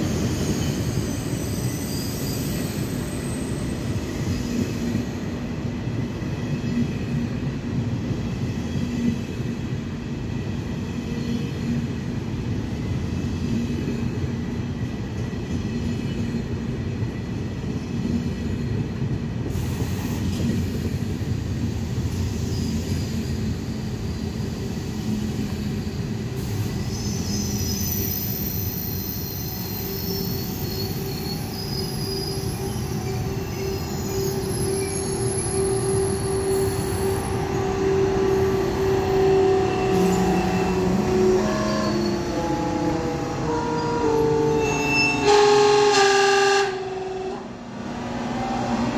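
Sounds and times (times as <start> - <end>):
train wheels rumbling on rails: 0.0 - 48.9
high-pitched squeal: 26.8 - 46.1.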